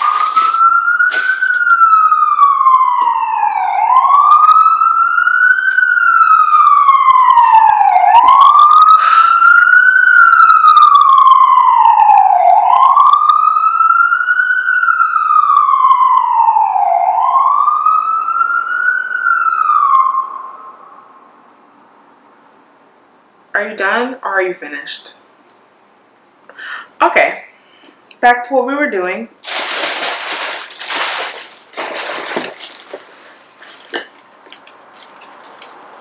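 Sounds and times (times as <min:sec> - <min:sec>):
emergency siren wailing: 0:00.0 - 0:21.6, 0:29.5 - 0:32.8.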